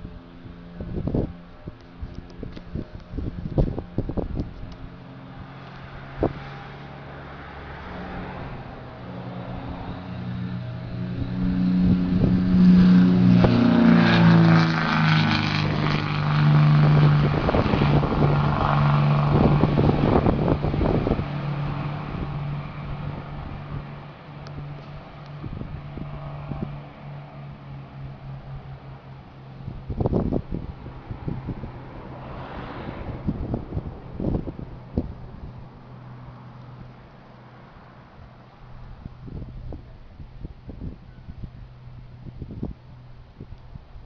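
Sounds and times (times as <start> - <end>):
light airplane engine drone: 0.0 - 44.0.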